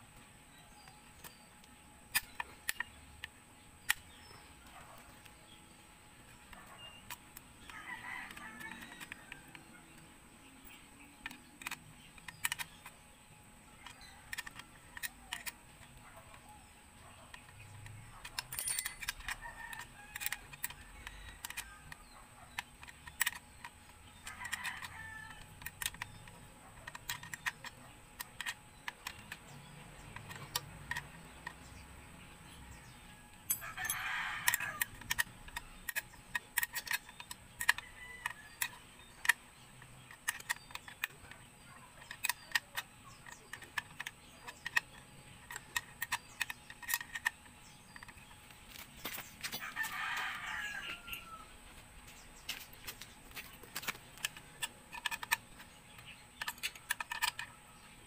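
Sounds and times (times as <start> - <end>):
rooster crowing: 7.7 - 9.6, 24.2 - 25.5, 33.6 - 34.9, 49.6 - 51.6
hand tools clinking on metal: 17.7 - 20.4, 33.4 - 34.8.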